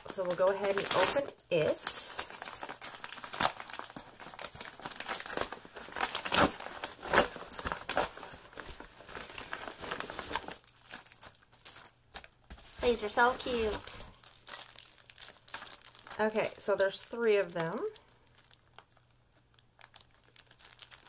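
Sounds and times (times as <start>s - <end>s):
paper envelope tearing: 0.0s - 11.2s.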